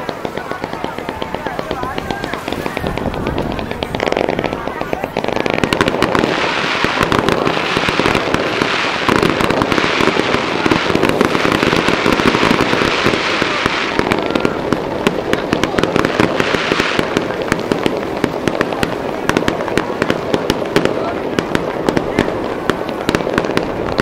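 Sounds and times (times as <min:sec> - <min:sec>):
fireworks crackling hiss: 0:00.0 - 0:24.0
fireworks popping and cracking: 0:00.0 - 0:24.0.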